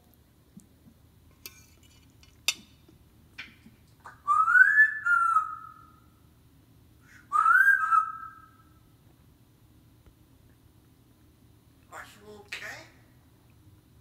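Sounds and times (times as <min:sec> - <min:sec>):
parrot whistling: 0:04.1 - 0:06.0, 0:07.1 - 0:08.7.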